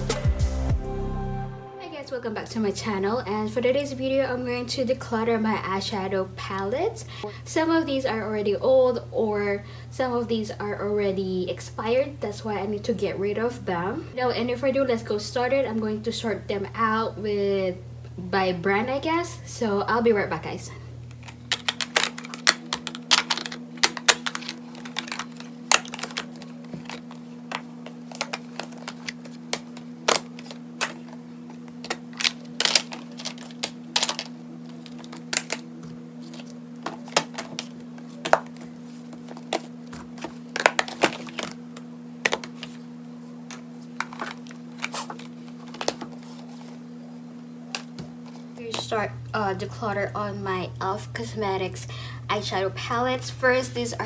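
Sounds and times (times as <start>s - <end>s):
steady low hum: 0.0s - 54.0s
plastic cases clacking together: 21.3s - 31.2s.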